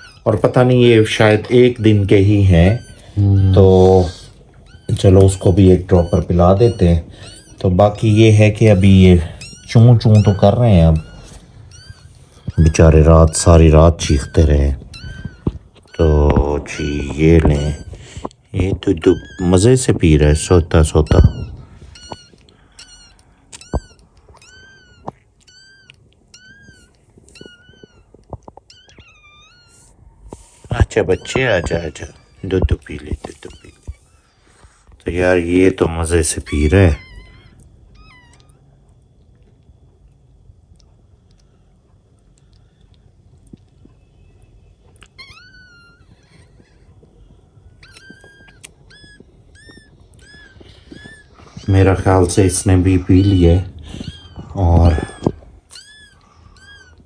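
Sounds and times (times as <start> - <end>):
puppy squeaking: 0.0 - 39.1, 43.5 - 57.0.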